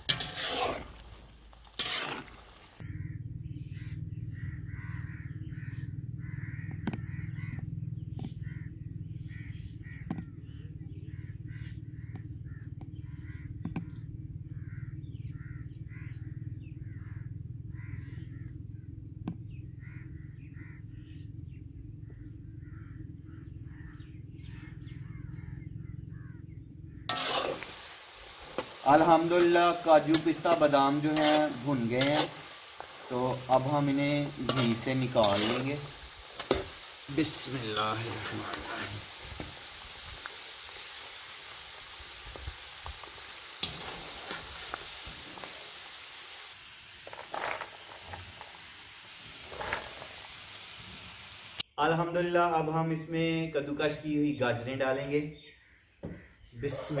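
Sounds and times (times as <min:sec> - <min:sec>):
ghee sizzling in a pan: 0:00.0 - 0:02.8, 0:27.1 - 0:51.6
crows cawing: 0:01.8 - 0:18.9, 0:19.7 - 0:46.4, 0:55.5 - 0:57.0.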